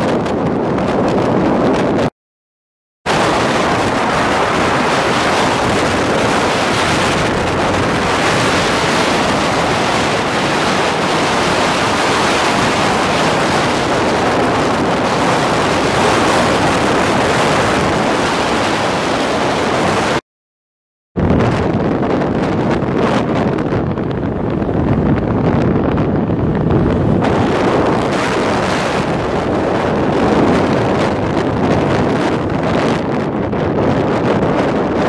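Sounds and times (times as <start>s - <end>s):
wind and road noise: 0.0s - 2.1s, 3.1s - 20.2s, 21.2s - 35.0s.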